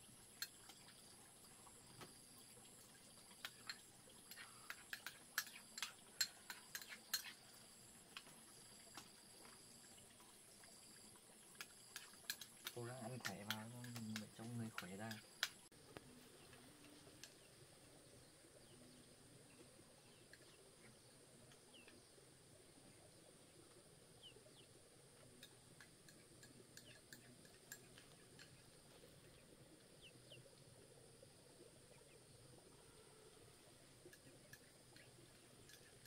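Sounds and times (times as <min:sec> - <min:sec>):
faint bird chirps: 0:12.7 - 0:30.6.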